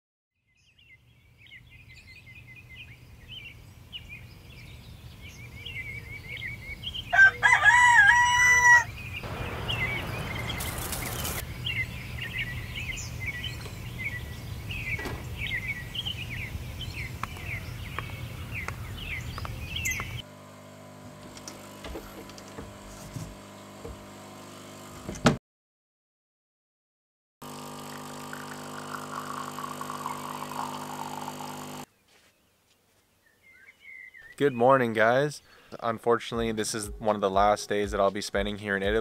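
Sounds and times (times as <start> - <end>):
small birds chirping: 0.5 - 7.4, 8.8 - 20.2, 31.9 - 37.2
rooster crowing: 7.1 - 10.8
short rushing noise: 9.2 - 11.5.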